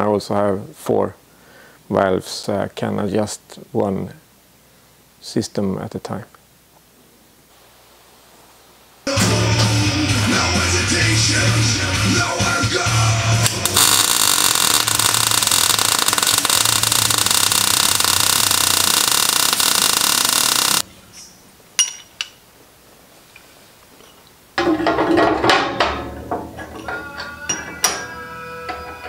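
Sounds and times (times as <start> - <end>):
arc welding crackle: 13.4 - 20.9
clicks: 13.5 - 20.8.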